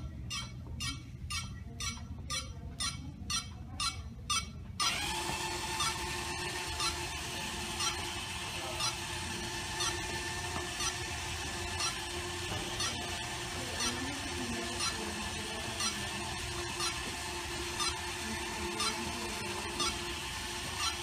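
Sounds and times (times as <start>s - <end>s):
electric motors whining: 4.6s - 21.0s.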